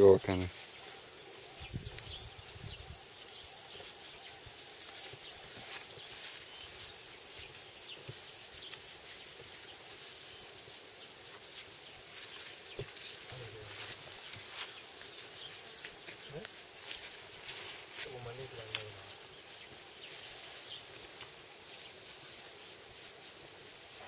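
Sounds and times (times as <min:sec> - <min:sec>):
insects hissing: 0:00.0 - 0:24.0
bird chirps: 0:01.2 - 0:11.2.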